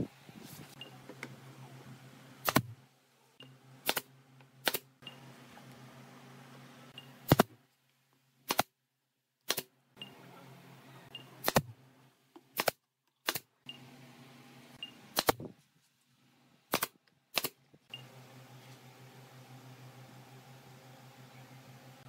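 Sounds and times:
nail gun firing: 2.4 - 2.8, 3.8 - 4.9, 7.2 - 7.5, 8.5 - 8.7, 9.5 - 9.7, 11.4 - 11.7, 12.5 - 13.5, 15.1 - 15.5, 16.7 - 17.6.

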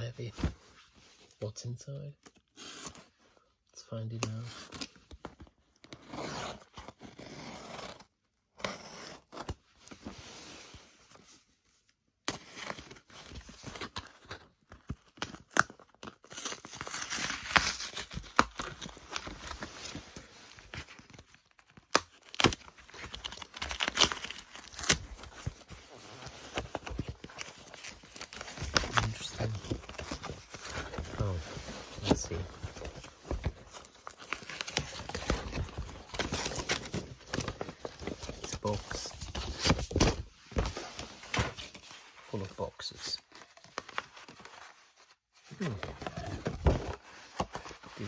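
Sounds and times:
cardboard crackling and rustling: 12.4 - 48.0
tape tearing: 21.8 - 25.3.

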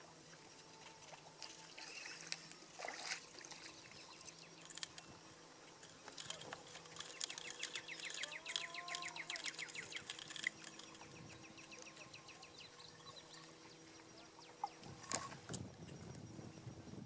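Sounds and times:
faint steady hum: 0.0 - 17.0
marsh bird calling: 6.8 - 14.8.

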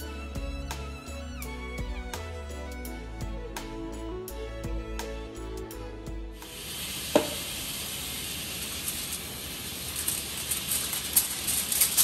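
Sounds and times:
background music: 0.0 - 6.8
steady hiss: 6.3 - 12.0
aluminium foil rustling: 7.4 - 12.0.

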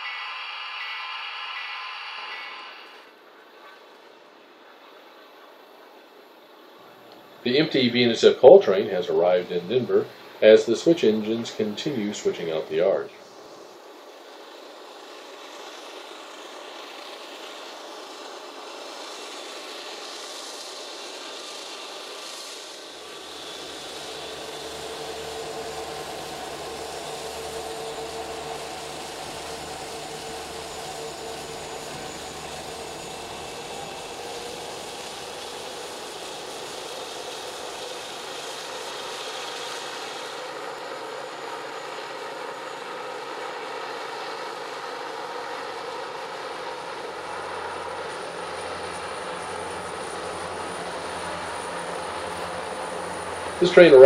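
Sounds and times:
diesel locomotive engine whine: 0.0 - 54.0
deep engine rumble: 21.5 - 40.7, 46.4 - 54.0.

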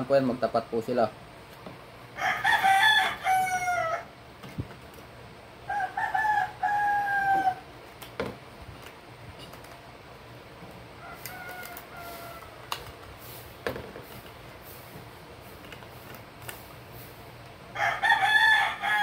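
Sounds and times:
rooster crowing: 2.2 - 4.1, 5.7 - 7.7, 11.0 - 12.7, 17.7 - 19.0.

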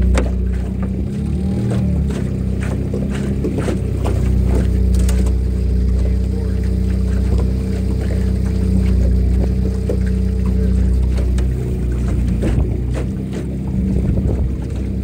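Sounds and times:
outboard motor running: 0.0 - 15.0.

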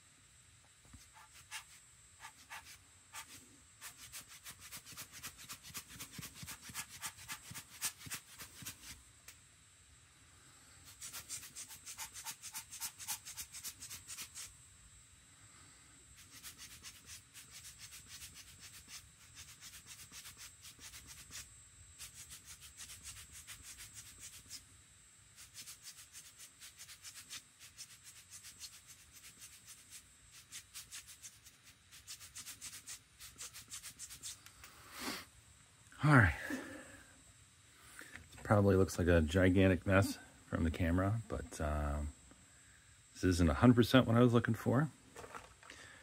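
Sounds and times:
scratchy rubbing strokes: 0.9 - 9.0, 10.8 - 14.6, 16.2 - 24.7, 25.3 - 35.2.

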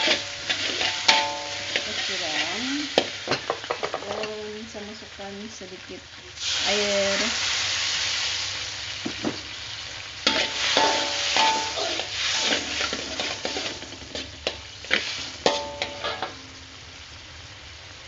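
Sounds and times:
metal spatula scraping a wok: 0.0 - 4.1, 10.2 - 16.6
water sizzling in hot oil: 0.0 - 18.0.

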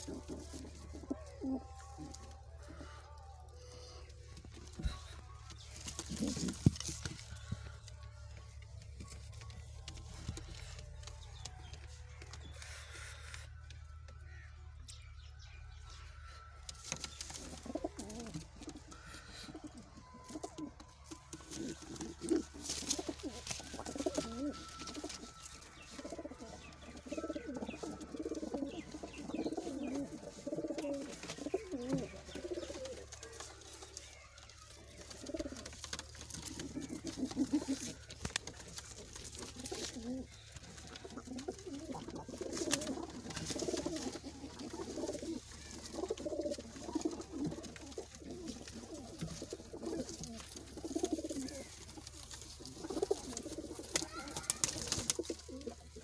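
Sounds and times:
pigeons cooing: 0.0 - 13.6, 16.6 - 56.0.

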